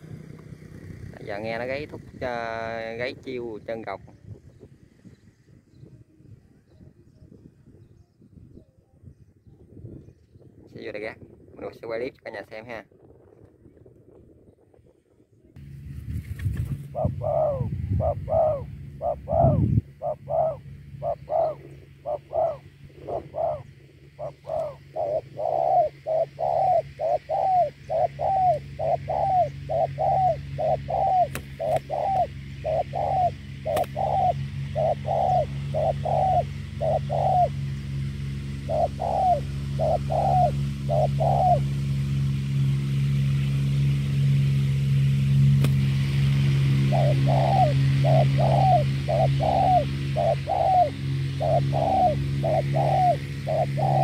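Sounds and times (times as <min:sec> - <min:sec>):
doves cooing: 0:00.0 - 0:03.9, 0:16.6 - 0:44.4, 0:45.4 - 0:54.0
low hum: 0:00.0 - 0:11.6, 0:12.8 - 0:54.0.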